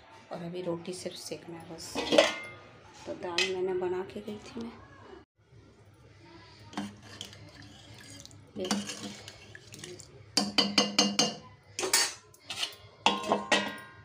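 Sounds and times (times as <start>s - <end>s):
metal plates and bowls clattering: 1.9s - 2.6s, 6.8s - 14.0s.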